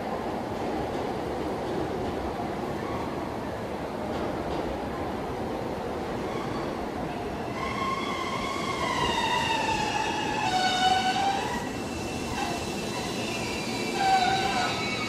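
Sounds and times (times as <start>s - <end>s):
train wheels squealing on track: 6.2s - 15.0s.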